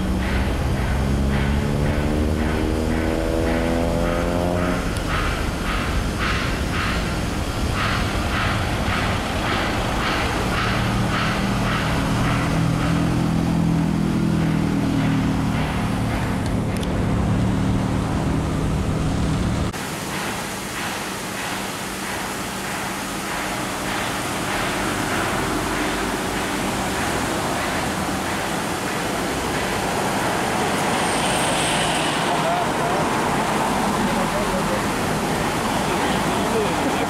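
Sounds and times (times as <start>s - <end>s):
distant jet engines rumbling: 0.0s - 37.0s
even rushing noise: 23.1s - 37.0s.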